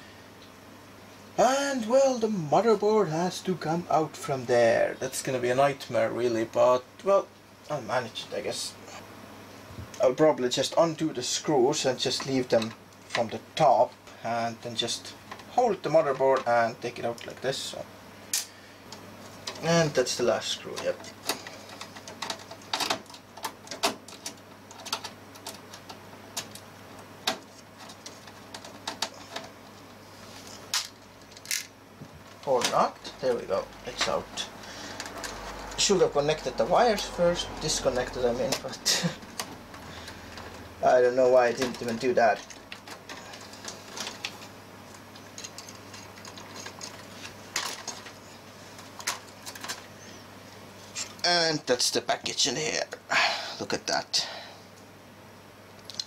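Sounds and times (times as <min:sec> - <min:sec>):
faint low hum: 0:00.0 - 0:56.0
clicks of computer parts handled: 0:20.8 - 0:26.6, 0:27.2 - 0:29.6, 0:48.8 - 0:49.9.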